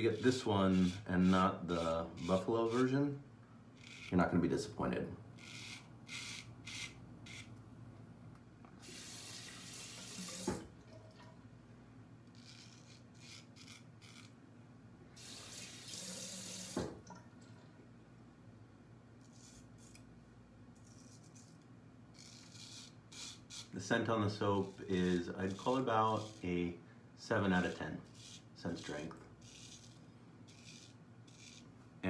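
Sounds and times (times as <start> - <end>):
tap water running: 8.8 - 11.4, 15.2 - 17.6.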